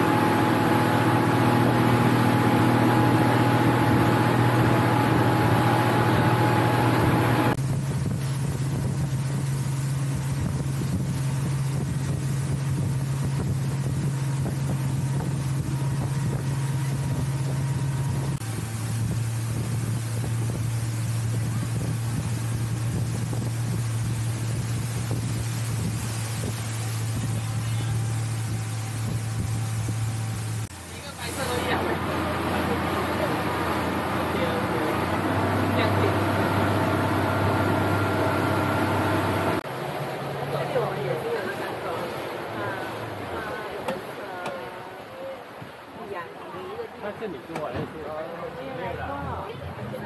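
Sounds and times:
motorboat engine humming: 0:00.0 - 0:50.0
wind on microphone: 0:00.1 - 0:30.7.

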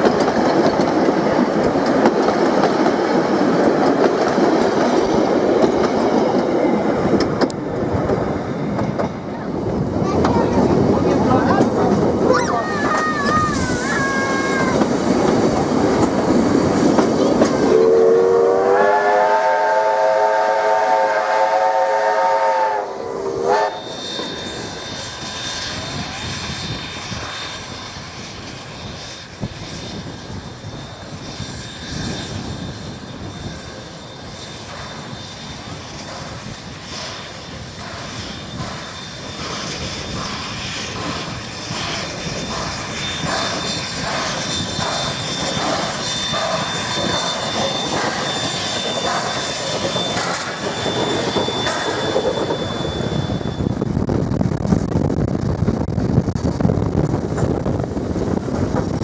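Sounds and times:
rail noise: 0:00.0 - 0:59.0
steam locomotive exhaust beats: 0:00.0 - 0:59.0
steam whistle chord: 0:17.6 - 0:25.2.

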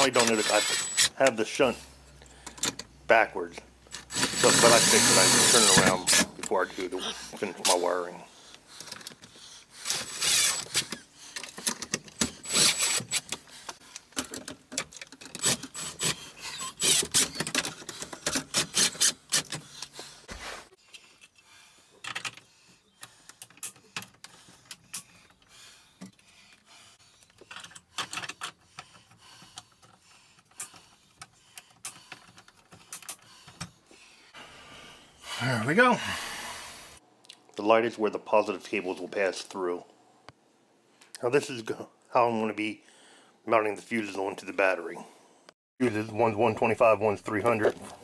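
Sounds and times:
cordless drill driving screws: 0:00.0 - 0:01.2, 0:03.9 - 0:06.3, 0:09.8 - 0:10.9, 0:12.2 - 0:13.3, 0:15.4 - 0:17.5, 0:18.5 - 0:19.7.

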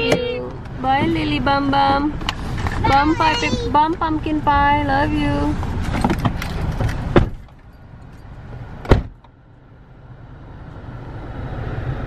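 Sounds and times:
car door shutting: 0:05.8 - 0:07.6, 0:08.8 - 0:09.3
car engine pulling away: 0:09.9 - 0:12.0.

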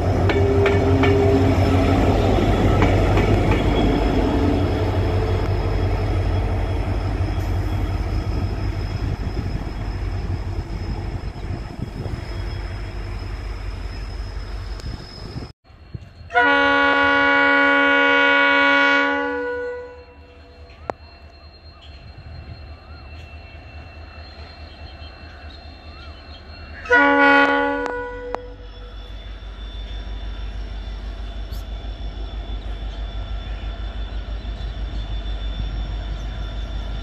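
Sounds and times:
multi-tone train horn: 0:00.0 - 0:06.2, 0:16.2 - 0:20.6, 0:26.8 - 0:29.4
diesel train rumbling past: 0:00.0 - 0:37.0.

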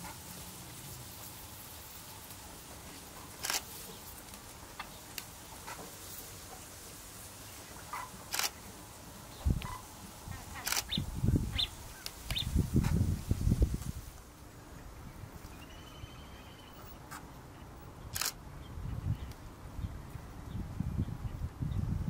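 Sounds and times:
short high chirps: 0:15.5 - 0:17.0.

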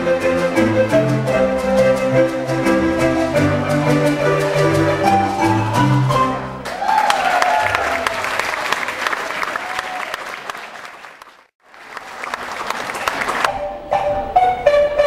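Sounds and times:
audience applauding: 0:06.6 - 0:13.6.

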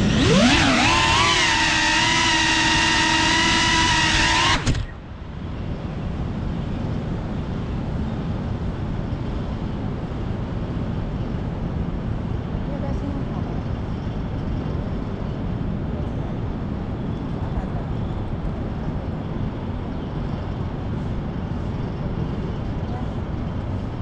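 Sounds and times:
drone motors whining: 0:00.0 - 0:05.2
city background noise: 0:00.0 - 0:24.0.

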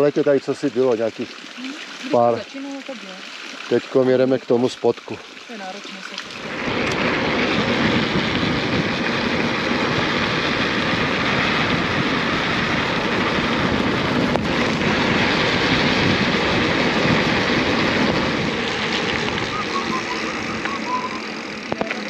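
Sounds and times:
wind rushing over microphone: 0:06.3 - 0:21.9
tyres rolling on dirt track: 0:06.5 - 0:22.0.

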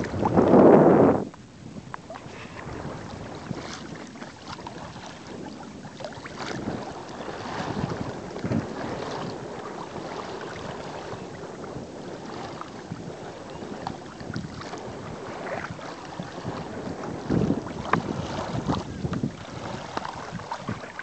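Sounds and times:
water splashing along hull: 0:00.0 - 0:21.0
wind buffeting microphone: 0:00.0 - 0:21.0.

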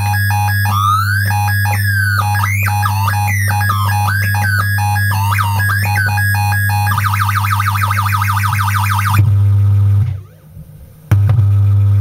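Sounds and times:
electronic tones gliding and stuttering: 0:00.0 - 0:09.3
steady low hum: 0:00.0 - 0:12.0.

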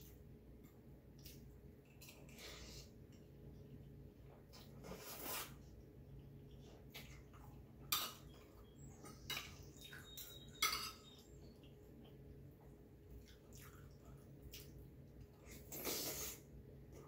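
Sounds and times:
slurp of noodles: 0:15.5 - 0:16.5.

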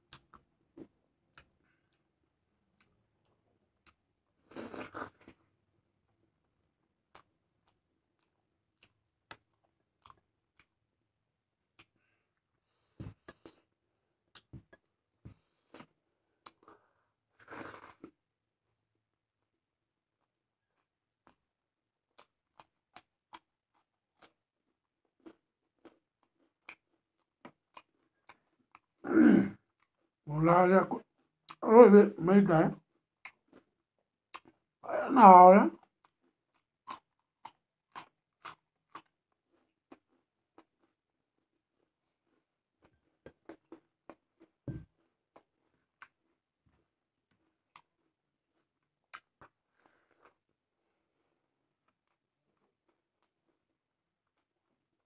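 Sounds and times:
chewing mouth sounds: 0:07.1 - 0:10.8, 0:20.7 - 0:29.0, 0:35.8 - 0:54.9.

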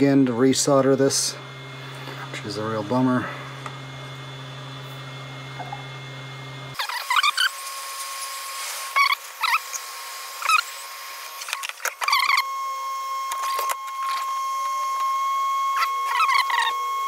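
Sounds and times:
steady high whine: 0:00.0 - 0:17.0.

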